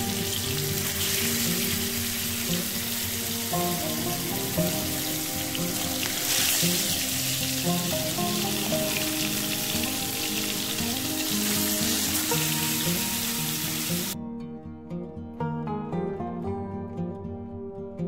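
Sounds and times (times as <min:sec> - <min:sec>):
fish sizzling in oil: 0:00.0 - 0:14.2
background music: 0:00.0 - 0:18.0.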